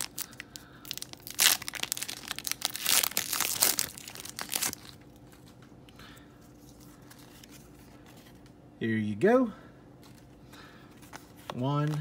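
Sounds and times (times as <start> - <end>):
foil wrapper crinkling: 0.0 - 5.5.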